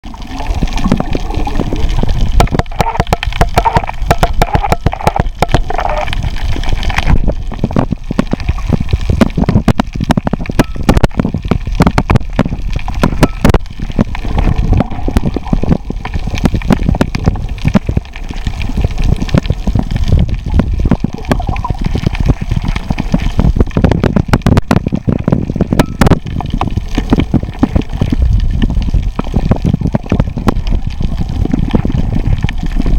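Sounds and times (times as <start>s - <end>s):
sharp crackling clicks underwater: 0.0s - 32.9s
underwater rush of water: 0.0s - 32.9s.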